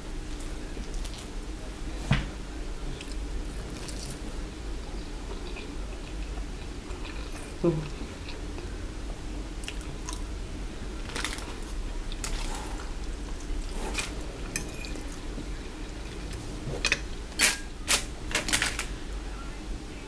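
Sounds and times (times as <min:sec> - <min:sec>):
low steady hum: 0:00.0 - 0:20.0
chewing: 0:05.3 - 0:08.6.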